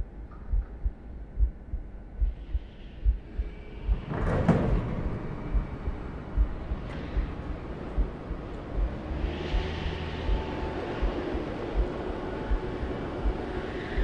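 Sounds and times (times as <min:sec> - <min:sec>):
low deep thuds: 0:00.0 - 0:14.0
loud rush of noise: 0:03.8 - 0:14.0.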